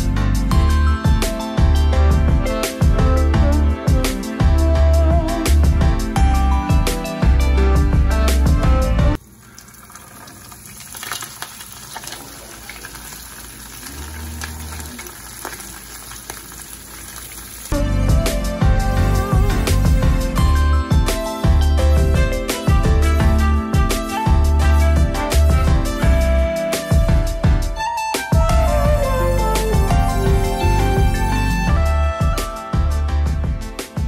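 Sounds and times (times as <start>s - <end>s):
background music with beat and bass: 0.0s - 9.2s, 17.8s - 34.0s
fish sizzling in hot oil: 9.4s - 17.8s.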